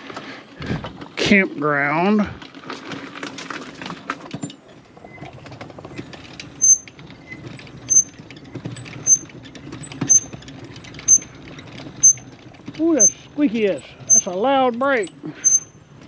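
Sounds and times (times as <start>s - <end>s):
brake squeaking: 0.0s - 16.0s
electric scooter drive humming: 0.0s - 16.0s
small rattling ticks: 4.7s - 16.0s.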